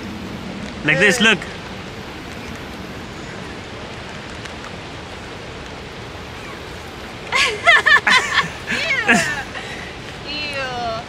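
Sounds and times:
water rushing along shore: 0.0 - 11.0.

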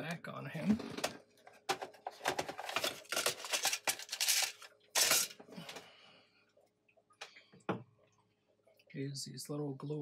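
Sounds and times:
rustling and scraping handling: 0.7 - 5.5.

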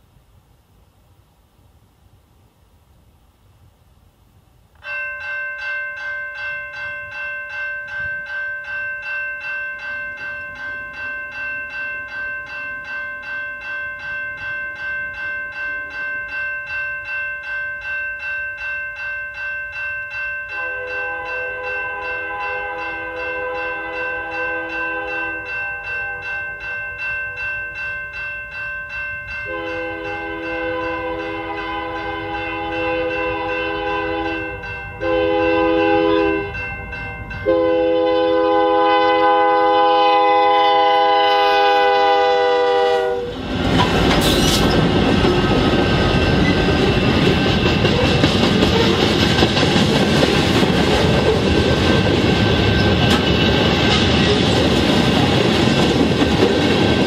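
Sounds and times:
railroad crossing bell ringing: 4.8 - 57.0
locomotive chime horn blast: 20.4 - 27.9, 29.2 - 43.5.

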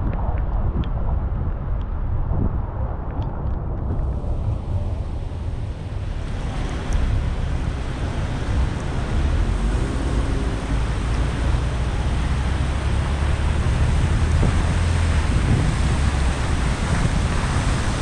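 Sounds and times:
car rumble: 0.0 - 18.0
tyres hissing on wet road: 4.4 - 18.0.

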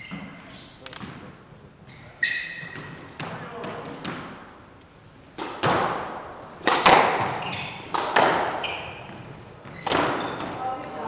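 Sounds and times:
shoe squeaks: 0.0 - 0.8, 1.9 - 3.6, 7.2 - 10.8
squash ball impacts: 2.5 - 4.5, 5.3 - 11.0.

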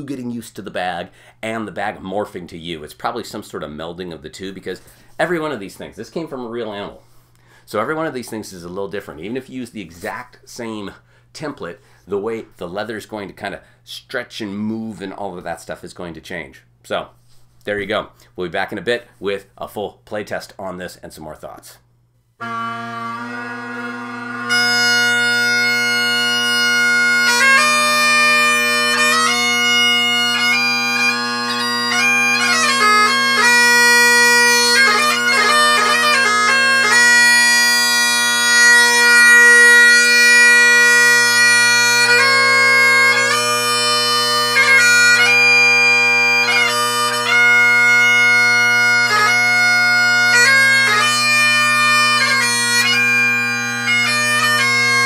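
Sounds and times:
bagpipe chanter playing tune: 22.4 - 55.0
bagpipe drones: 22.4 - 55.0.

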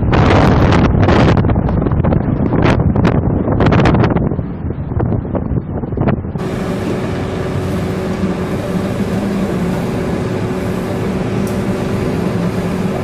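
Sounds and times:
heavy sea: 0.0 - 13.0
storm wind: 0.0 - 13.0
ship machinery humming: 6.4 - 13.0.

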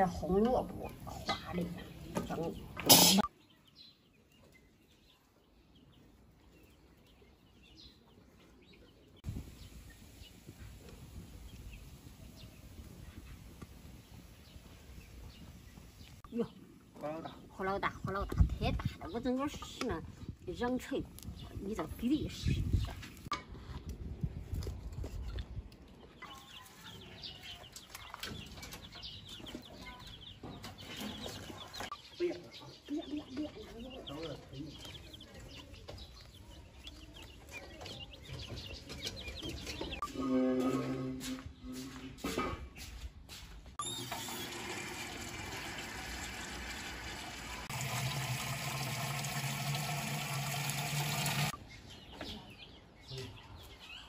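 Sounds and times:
chicks cheeping: 26.0 - 40.2
chickens clucking: 26.1 - 40.2
water pouring into metal reservoir: 43.8 - 51.6.

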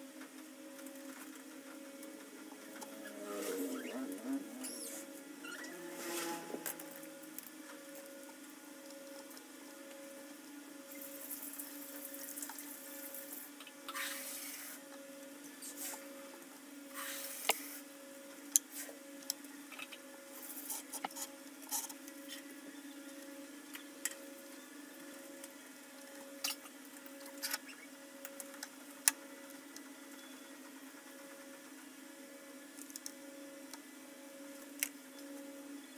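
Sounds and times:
steady low hum: 0.0 - 31.5
faint pulsing tone: 2.6 - 7.2.

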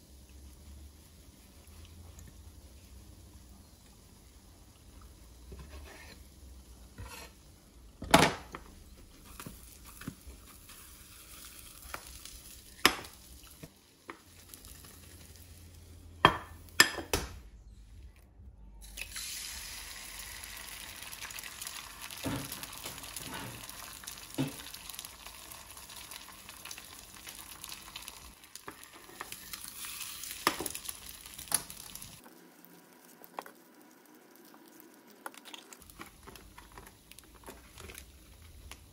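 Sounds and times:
egg sizzling in frying pan: 8.9 - 16.8, 18.8 - 38.9
egg cracking: 20.2 - 38.9.

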